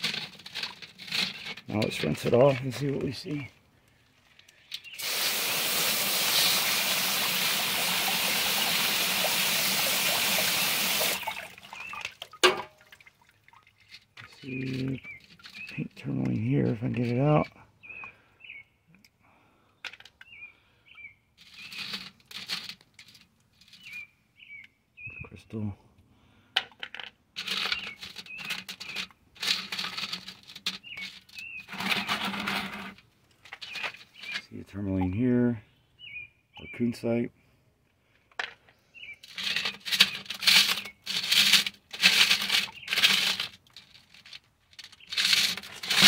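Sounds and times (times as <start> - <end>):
rocks rattling on mesh screen: 0.0 - 3.5, 4.2 - 17.5, 21.4 - 24.1, 26.6 - 34.5, 38.3 - 46.0
bird chirping: 2.8 - 5.1, 11.3 - 12.2, 14.2 - 16.8, 17.8 - 19.0, 20.2 - 21.9, 23.6 - 25.6, 27.6 - 29.1, 30.8 - 32.2, 33.6 - 36.9, 38.7 - 41.0, 42.6 - 43.0
hose spraying water on rocks: 5.0 - 11.5
water drips: 7.1 - 14.4.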